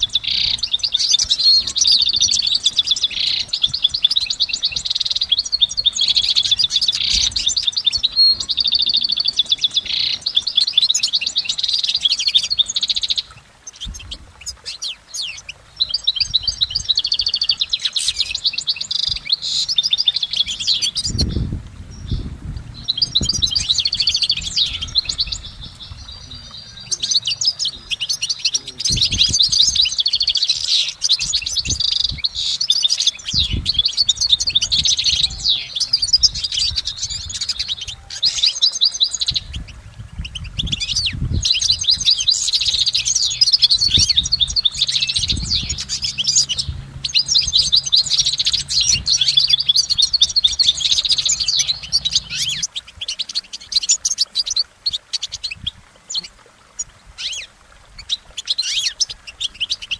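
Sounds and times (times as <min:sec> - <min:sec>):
finch twittering song: 0:00.0 - 0:59.9
dull low thumps: 0:21.1 - 0:27.0.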